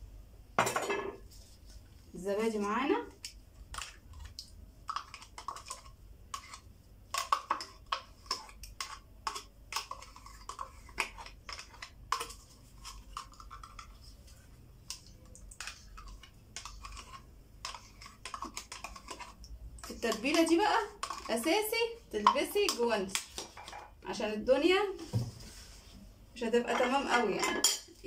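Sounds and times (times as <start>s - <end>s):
metal spoon scraping plastic cup: 15.6s - 21.6s.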